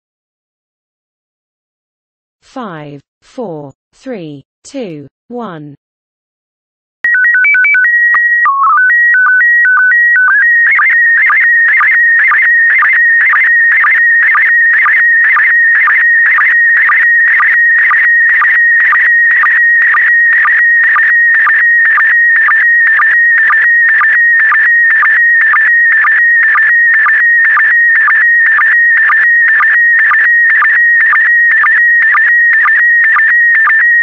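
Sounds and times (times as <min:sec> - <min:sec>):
stepped beeping tones: 0:07.1 - 0:34.0.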